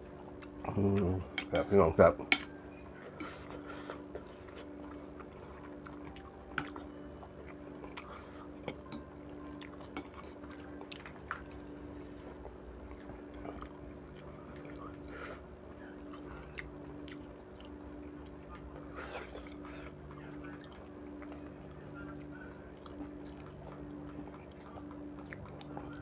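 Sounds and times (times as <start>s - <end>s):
steady low hum: 0.0s - 26.0s
cutlery clinking against a bowl: 1.3s - 4.3s, 9.8s - 10.6s.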